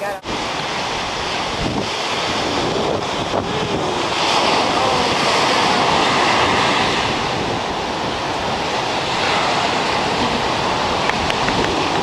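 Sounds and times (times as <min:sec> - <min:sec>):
waves washing onto beach: 0:00.0 - 0:12.0
wind buffeting microphone: 0:00.0 - 0:12.0.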